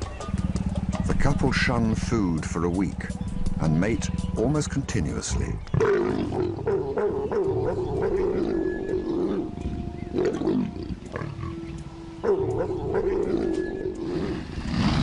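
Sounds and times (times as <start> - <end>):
leopards growling and snarling: 5.3 - 15.0.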